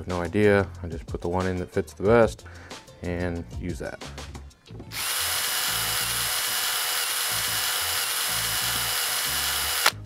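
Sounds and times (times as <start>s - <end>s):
background music with bass line: 0.0s - 5.0s.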